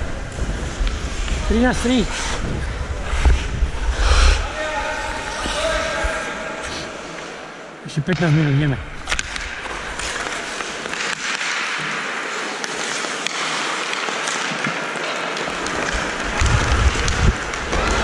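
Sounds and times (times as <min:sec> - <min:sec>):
wind rumble on microphone: 0:00.0 - 0:06.1, 0:16.3 - 0:18.0
ice skates scraping: 0:00.0 - 0:07.8, 0:08.9 - 0:18.0.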